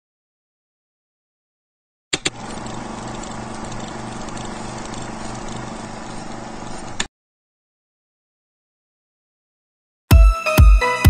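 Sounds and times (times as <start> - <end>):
film projector whirring clatter: 2.2 - 7.1.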